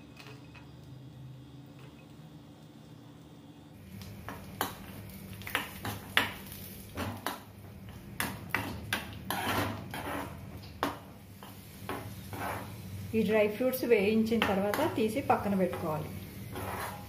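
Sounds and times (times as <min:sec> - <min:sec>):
spoon scraping and clinking pan: 0:16.5 - 0:17.0.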